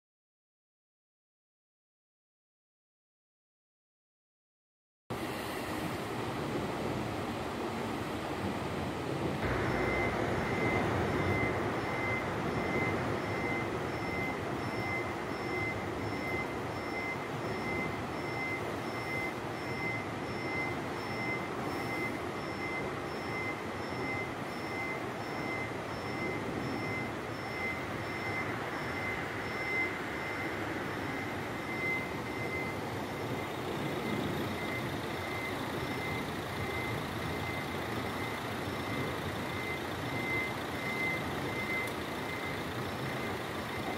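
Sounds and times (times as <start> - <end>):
steady rushing noise: 5.1 - 43.9
level crossing warning bell: 9.4 - 43.9.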